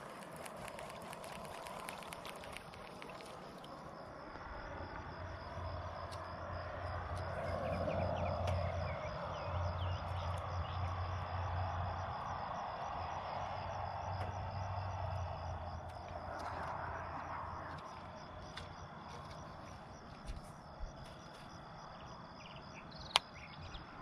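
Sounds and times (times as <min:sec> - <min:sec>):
faint clicks: 0:00.0 - 0:03.8
soft rushing background: 0:00.0 - 0:22.8
crickets chirping: 0:00.0 - 0:24.0.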